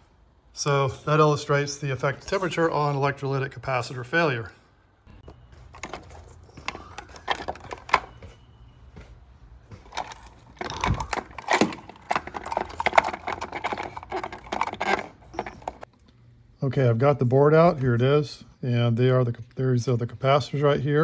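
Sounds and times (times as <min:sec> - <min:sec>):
plastic plugs clicking and snapping: 0:05.8 - 0:08.1, 0:09.8 - 0:15.8.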